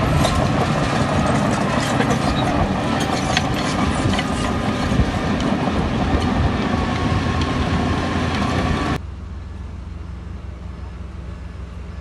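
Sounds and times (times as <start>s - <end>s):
metallic clanking and rattling: 0.0s - 6.4s
heavy diesel machine engine: 0.0s - 12.0s.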